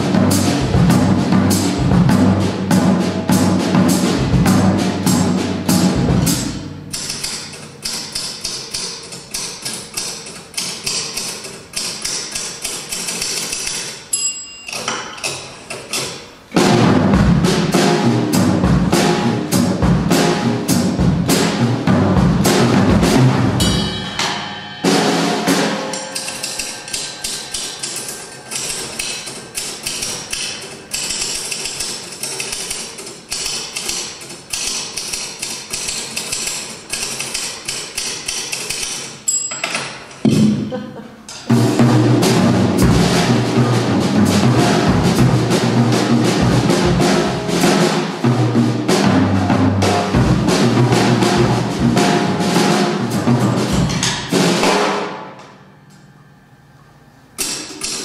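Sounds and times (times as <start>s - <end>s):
drum kit groove: 0.0s - 8.2s, 16.0s - 32.0s, 40.2s - 55.4s
typewriter keys clacking: 6.9s - 14.0s, 26.2s - 39.9s.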